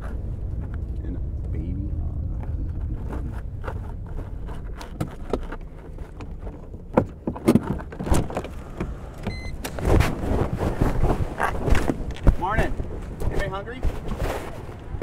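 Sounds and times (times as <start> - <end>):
car engine idling: 0.0 - 9.7
clicks and rustles of handling: 2.4 - 8.9
clunks: 2.4 - 9.9
electronic beep: 9.3 - 9.6.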